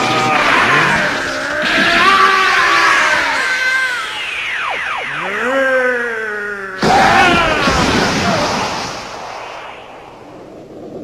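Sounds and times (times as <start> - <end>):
high cry-like tone: 0.0 - 7.5.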